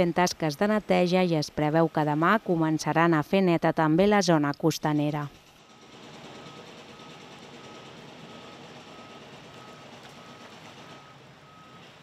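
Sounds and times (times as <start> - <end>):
reversing alarm beeping: 5.7 - 12.0.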